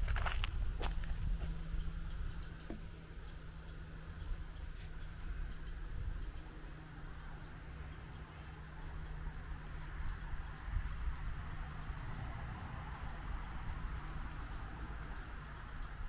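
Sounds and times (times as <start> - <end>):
footsteps: 0.0 - 1.6
wind buffeting microphone: 0.0 - 2.6.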